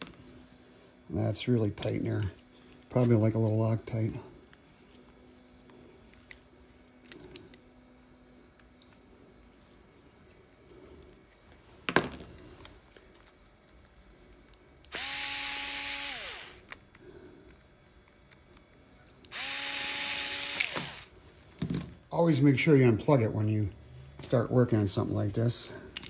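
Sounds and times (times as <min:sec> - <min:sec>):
cordless drill whining: 0:14.9 - 0:16.8, 0:19.3 - 0:21.1.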